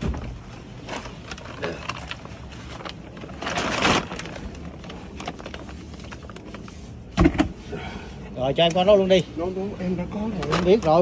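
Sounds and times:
plastic sack rustling: 0:00.0 - 0:07.2, 0:10.1 - 0:11.0.

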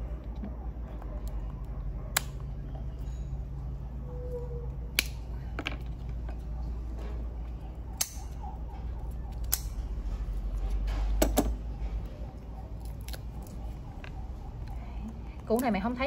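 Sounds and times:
steady low hum: 0:00.0 - 0:16.0
tubers snapping apart: 0:09.3 - 0:09.8.

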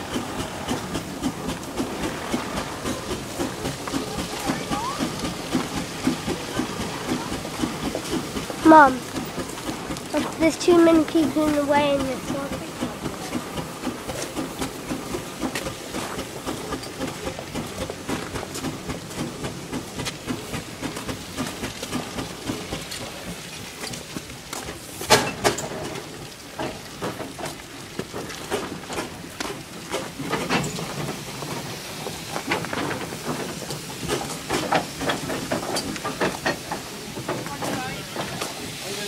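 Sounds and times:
hissing beats: 0:00.0 - 0:22.8
steam engine exhaust chuffing: 0:00.0 - 0:39.0.

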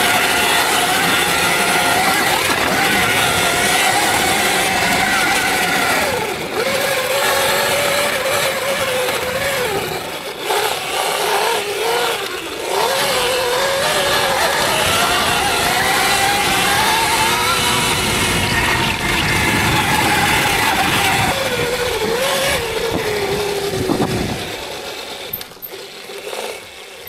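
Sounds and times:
steady rushing noise: 0:00.0 - 0:25.4
electric motor whining: 0:00.0 - 0:27.0.

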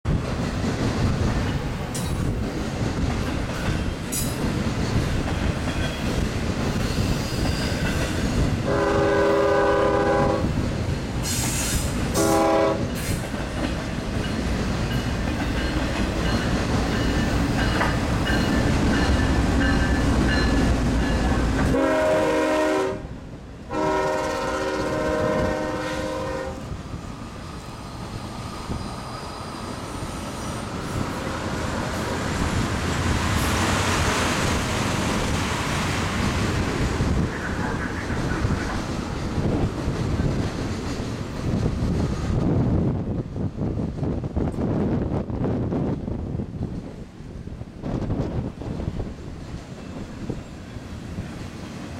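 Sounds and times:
freight trains rumbling: 0:00.0 - 0:51.9
train wheel clatter: 0:00.1 - 0:22.8, 0:27.1 - 0:44.8
locomotive air horn blasts: 0:08.6 - 0:10.5, 0:12.1 - 0:12.9, 0:21.7 - 0:26.7.

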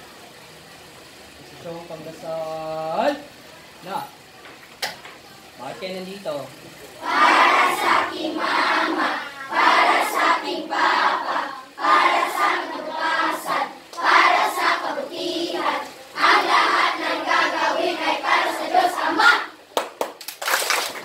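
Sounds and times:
children singing in unison: 0:07.0 - 0:19.6.

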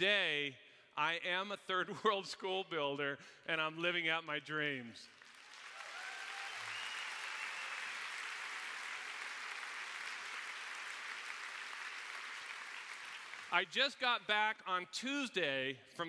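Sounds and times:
audience applauding: 0:05.2 - 0:13.6
audience cheering: 0:05.5 - 0:12.8.

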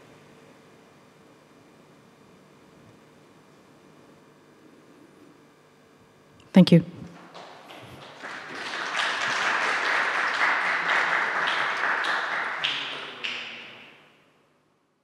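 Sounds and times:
audience applauding: 0:07.1 - 0:14.0.

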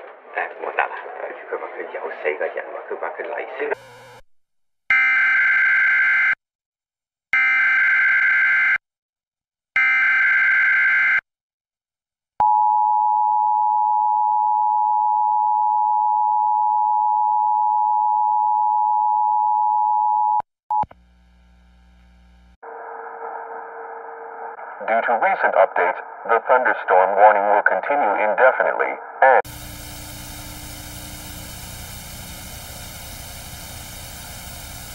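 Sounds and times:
data header bursts: 0:29.5 - 0:34.9.

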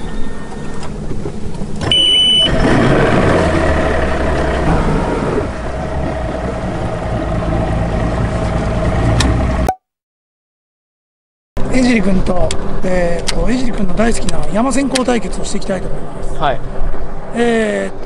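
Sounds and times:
outboard motor starting and idling: 0:01.7 - 0:09.7
electronic warning beep: 0:01.9 - 0:02.6.

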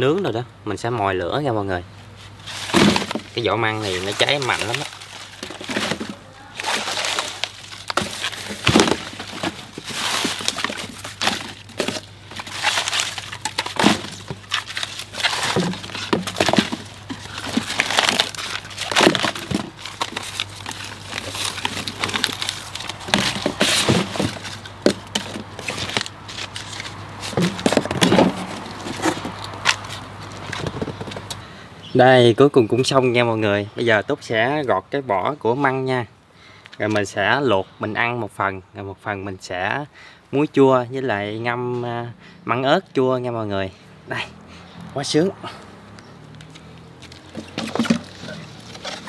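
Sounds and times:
papery sheaths tearing and crackling: 0:02.3 - 0:30.7, 0:46.2 - 0:49.0.

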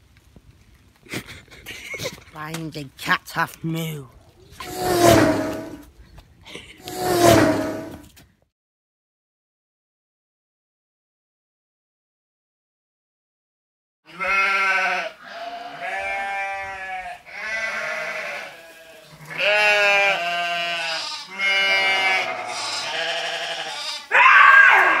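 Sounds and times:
bleat-like calls: 0:14.1 - 0:25.0
loud cry: 0:23.7 - 0:25.0.

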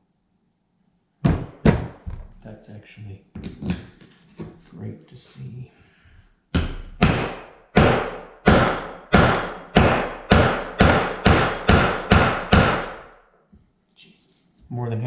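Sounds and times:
hammer striking metal punch: 0:06.6 - 0:13.2.

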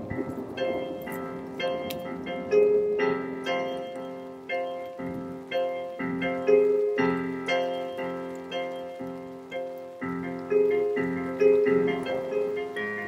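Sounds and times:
piano notes and chords: 0:00.0 - 0:13.0.

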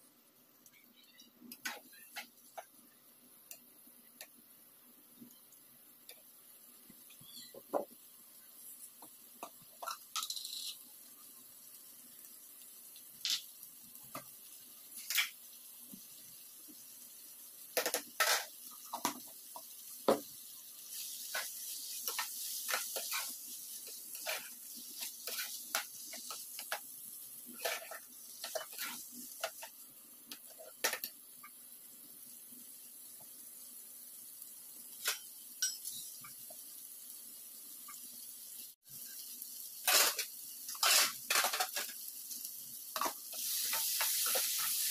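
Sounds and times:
faint frying hiss: 0:00.0 - 0:44.9
metal spatula scraping pan: 0:22.1 - 0:26.7, 0:27.6 - 0:29.6, 0:39.8 - 0:41.9.

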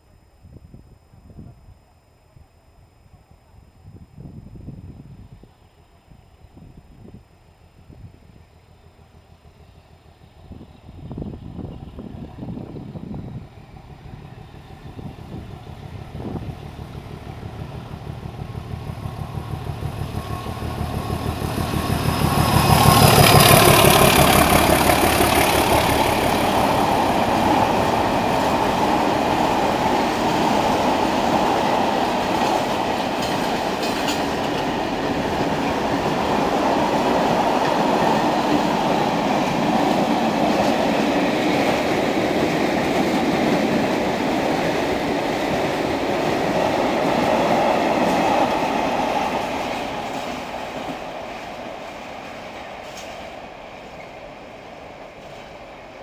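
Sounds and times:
diesel locomotive engine throbbing: 0:08.8 - 0:52.9
train coaches rolling on rails: 0:11.6 - 0:56.0.

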